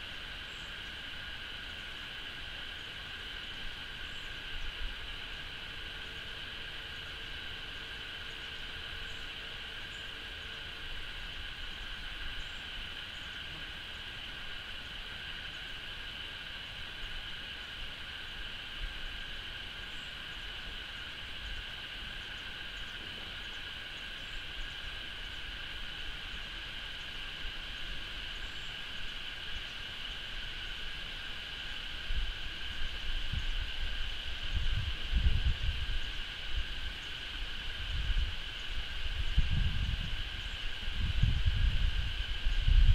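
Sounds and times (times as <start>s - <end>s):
insects droning: 0.0s - 42.9s
wind rumble on microphone: 31.9s - 42.9s.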